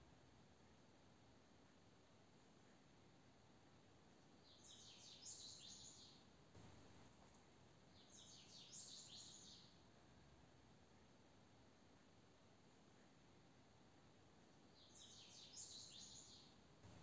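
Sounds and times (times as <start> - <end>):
faint bird twittering: 7.9 - 9.7, 14.8 - 17.0.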